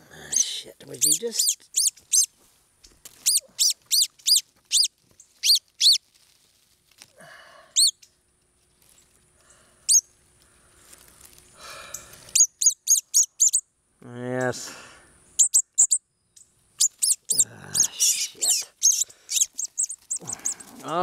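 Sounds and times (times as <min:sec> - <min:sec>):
bird sharp chip calls: 0:00.3 - 0:02.3, 0:03.2 - 0:06.0, 0:12.3 - 0:13.6, 0:15.3 - 0:21.0.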